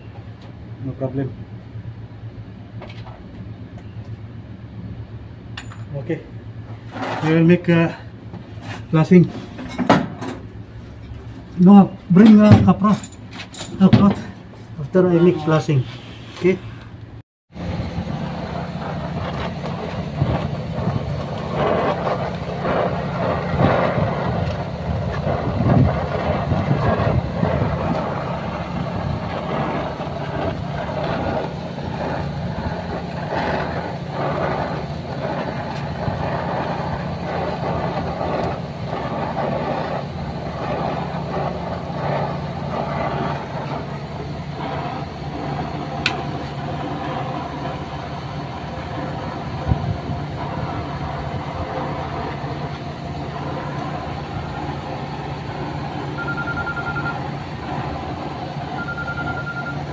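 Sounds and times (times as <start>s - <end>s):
low machine hum: 0.0s - 59.9s
gas torch hissing: 13.8s - 17.0s, 17.6s - 59.9s.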